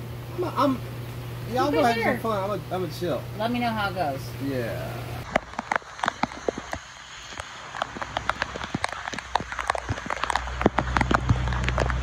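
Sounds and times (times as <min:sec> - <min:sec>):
raindrops ticking: 0:05.2 - 0:12.0.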